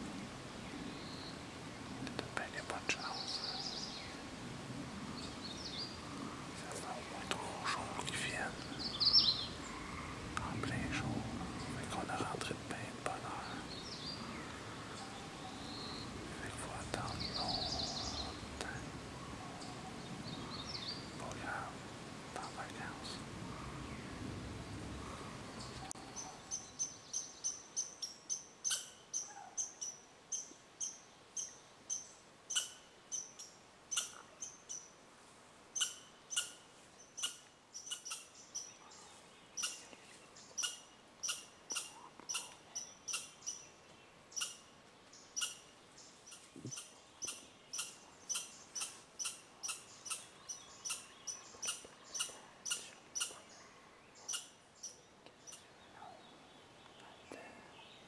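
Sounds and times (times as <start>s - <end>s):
small animal chip calls: 46.3s - 53.4s.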